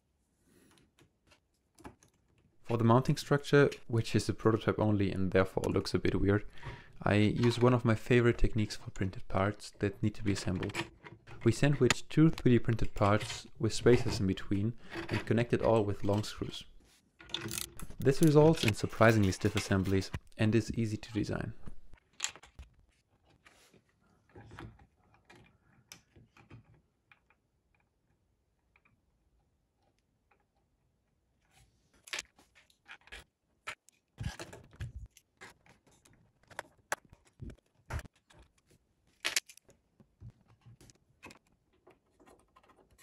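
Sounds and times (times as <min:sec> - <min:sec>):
clicks and taps of screws and parts: 0:17.2 - 0:20.2.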